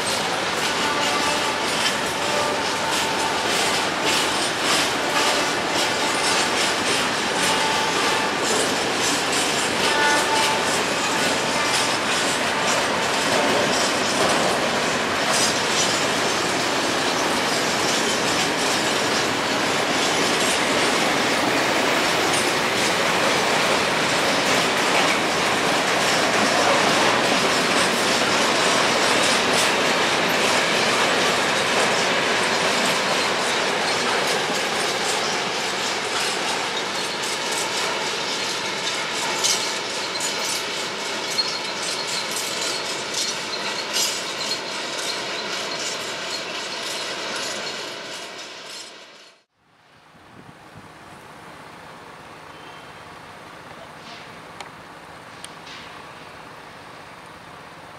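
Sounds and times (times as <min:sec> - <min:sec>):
train wheels clacking over rail joints: 0:00.0 - 0:49.4.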